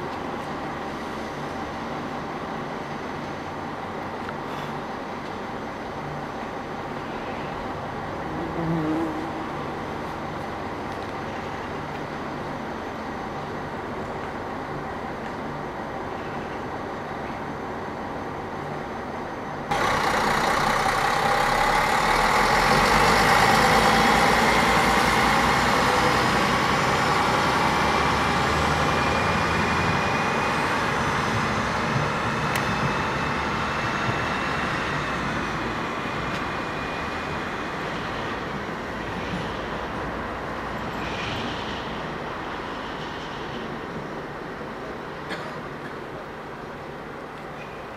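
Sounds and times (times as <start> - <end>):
diesel railcar engine whining: 0.0 - 47.9
railcar approaching: 0.0 - 47.9.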